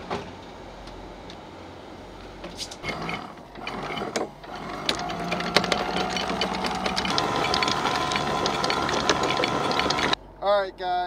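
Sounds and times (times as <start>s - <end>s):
windlass motor whining: 0.6s - 10.2s
anchor chain clattering: 2.8s - 10.2s.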